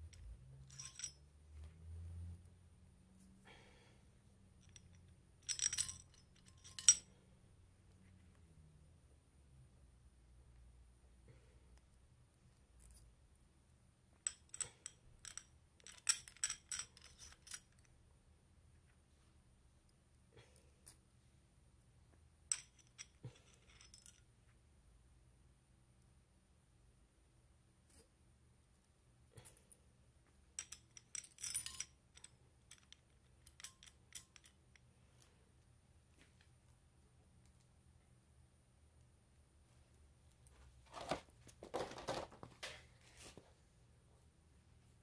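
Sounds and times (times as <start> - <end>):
small hard parts clinking: 0.0 - 1.8, 4.5 - 7.2, 14.2 - 17.9, 22.5 - 24.3, 30.6 - 34.9.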